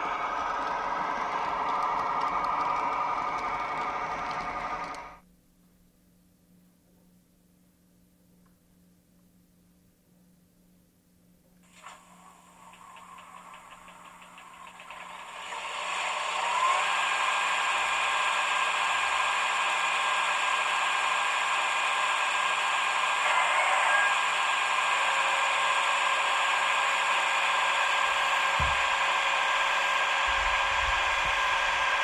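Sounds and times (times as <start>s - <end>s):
model crane running noise: 0.0s - 5.2s, 11.7s - 32.0s
low thump: 28.6s - 28.9s.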